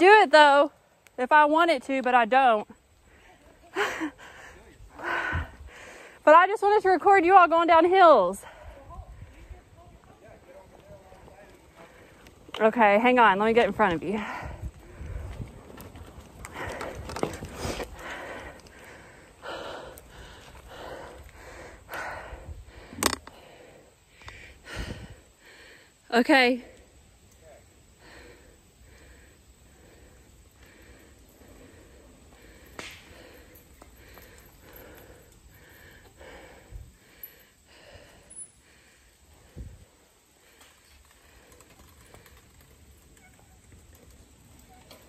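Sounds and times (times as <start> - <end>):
person breathing hard and fast: 3.0 - 6.3, 14.1 - 26.0, 27.9 - 42.9.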